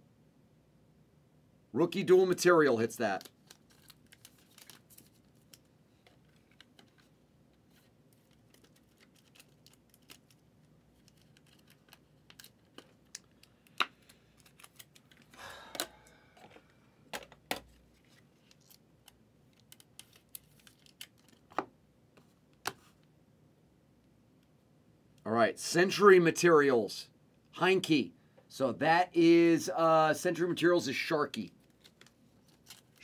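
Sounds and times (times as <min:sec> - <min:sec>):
cards rustling: 0:03.0 - 0:15.4, 0:17.5 - 0:21.6, 0:31.6 - 0:33.0.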